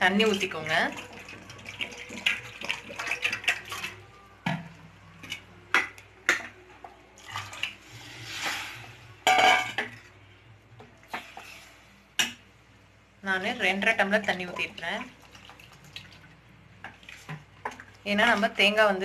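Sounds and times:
ladle scraping metal pot: 0.6s - 4.1s, 7.2s - 10.2s, 11.0s - 12.0s.

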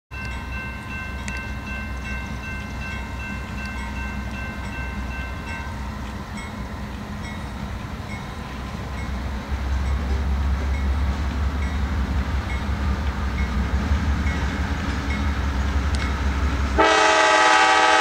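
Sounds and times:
freight train rumble: 0.1s - 18.0s
distant train horn chord: 16.6s - 18.0s.

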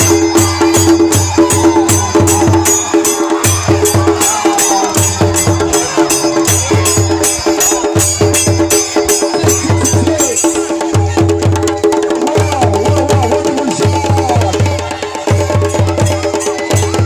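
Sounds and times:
sharp percussion strokes: 0.0s - 17.0s.

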